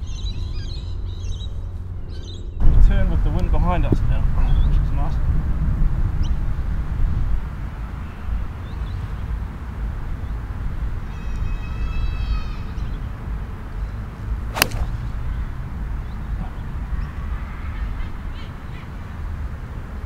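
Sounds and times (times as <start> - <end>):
wind rumble: 2.6 - 8.5
golf club striking ball: 14.5 - 15.2.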